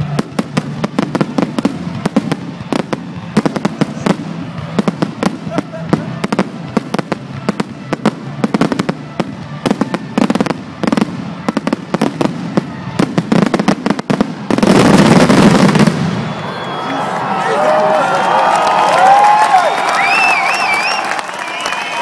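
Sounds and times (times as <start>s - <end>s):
fireworks bangs and crackles: 0.0s - 16.7s.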